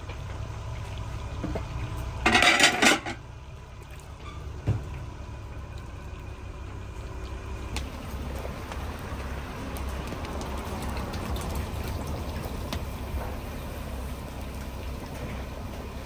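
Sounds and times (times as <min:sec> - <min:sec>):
wood fire crackling pops: 0:07.2 - 0:13.4.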